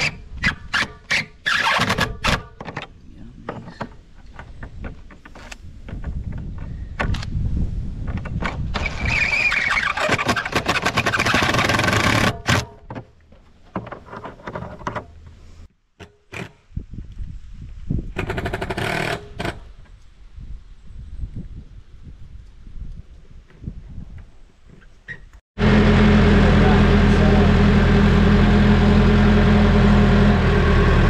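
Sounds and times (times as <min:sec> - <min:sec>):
impact driver rattling: 0:10.0 - 0:12.8.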